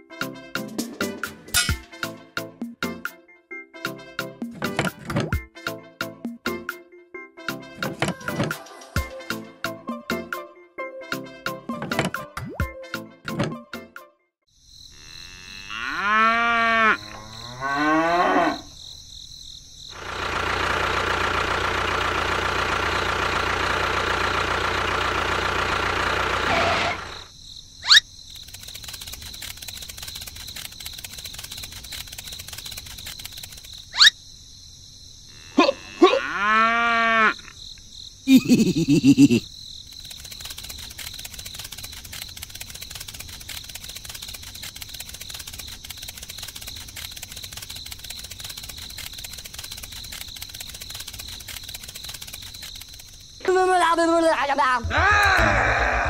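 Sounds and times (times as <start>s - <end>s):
cow mooing: 15.0s - 18.7s, 35.3s - 37.5s
sharp clicks: 28.3s - 33.9s, 39.8s - 53.4s.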